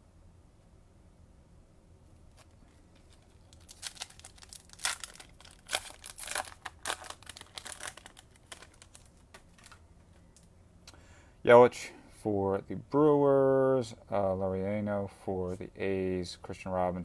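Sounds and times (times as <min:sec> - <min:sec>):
plastic wrapper tearing and crinkling: 0:02.3 - 0:09.8.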